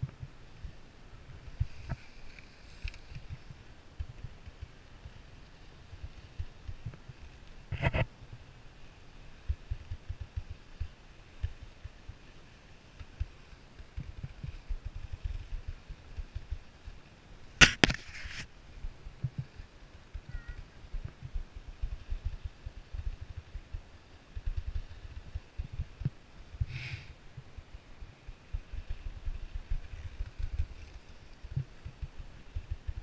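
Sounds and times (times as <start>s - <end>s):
wind buffeting microphone: 18.8s - 33.0s.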